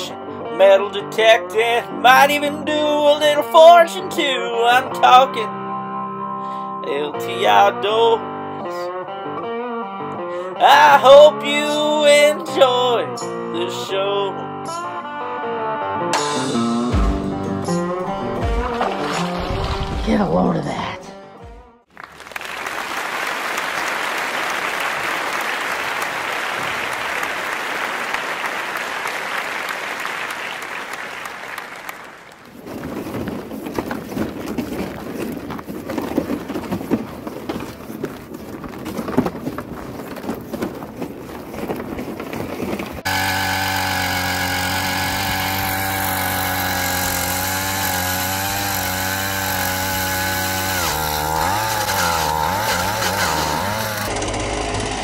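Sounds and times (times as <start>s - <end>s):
crackling rustle: 32.3s - 43.1s
ice auger engine drilling: 32.4s - 55.0s.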